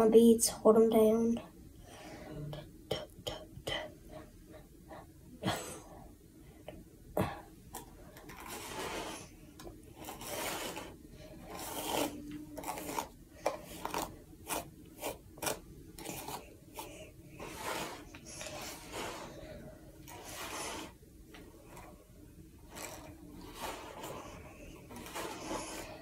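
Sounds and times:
hairbrush strokes through hair: 8.3s - 21.0s, 22.6s - 26.0s.

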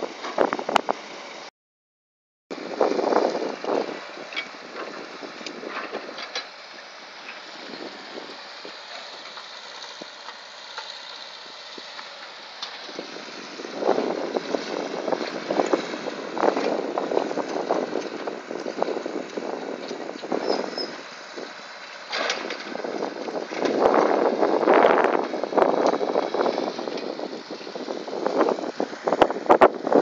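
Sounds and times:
wind buffeting microphone: 0.0s - 1.1s, 2.5s - 6.3s, 12.9s - 21.6s, 22.4s - 30.0s
distant diesel machinery running: 2.5s - 30.0s.

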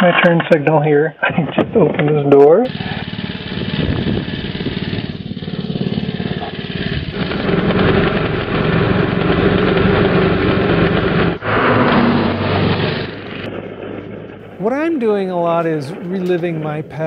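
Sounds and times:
small gasoline motor running: 2.7s - 13.4s.

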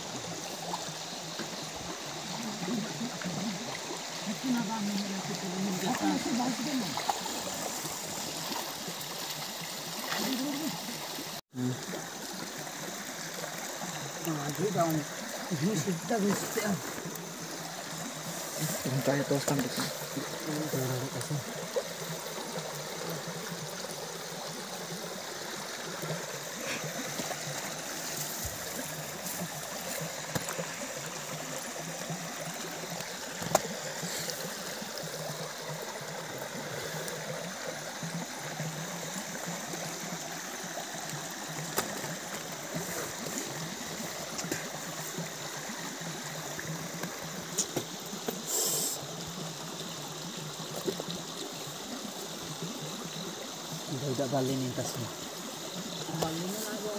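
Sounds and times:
running river water: 0.0s - 56.9s
brief hiss: 48.4s - 49.0s.

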